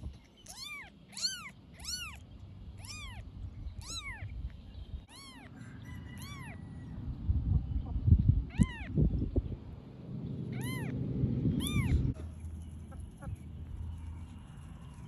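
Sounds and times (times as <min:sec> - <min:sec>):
kitten mewing: 0:00.5 - 0:02.2, 0:02.8 - 0:03.2, 0:03.8 - 0:04.4, 0:05.1 - 0:05.5, 0:08.5 - 0:08.9, 0:11.6 - 0:12.1.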